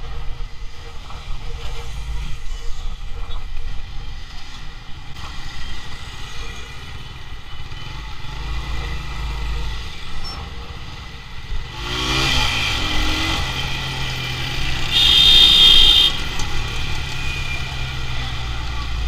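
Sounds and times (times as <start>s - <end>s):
traffic: 0.0s - 19.0s
motorcycle engine running: 14.8s - 16.6s.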